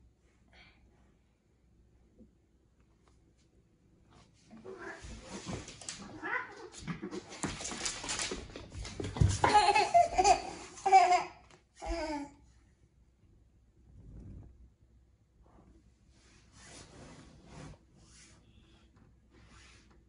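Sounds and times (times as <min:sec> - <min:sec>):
cats wrestling on wooden floor: 0:04.6 - 0:10.1
child laughing and babbling: 0:09.4 - 0:12.4.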